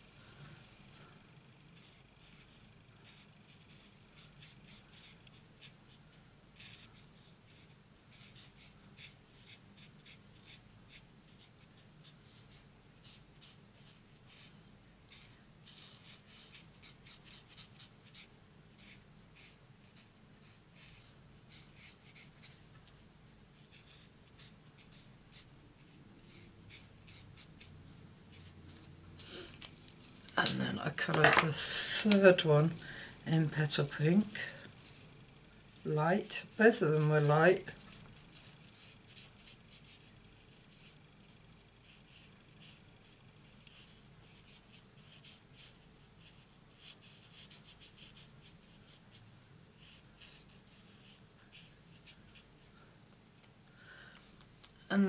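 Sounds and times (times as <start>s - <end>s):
marker scratching on cardstock: 1.8s - 5.8s, 6.6s - 14.5s, 15.1s - 22.6s, 23.6s - 28.6s, 38.3s - 49.0s, 49.8s - 52.5s.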